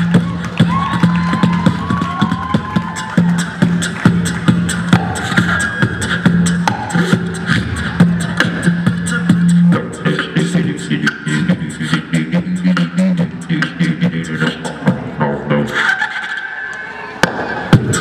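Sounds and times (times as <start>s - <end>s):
beatbox mouth percussion: 0.0s - 16.5s, 17.2s - 18.0s
low vocal bass tone: 3.2s - 15.8s.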